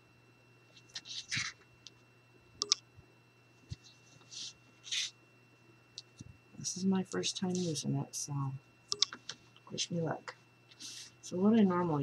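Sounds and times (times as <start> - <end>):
sharp click: 2.6 - 2.8, 8.9 - 9.3.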